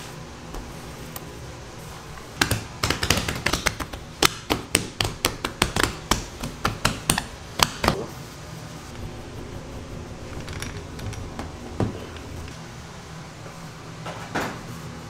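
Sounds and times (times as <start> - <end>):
hand patting dough on wood: 2.4 - 8.0.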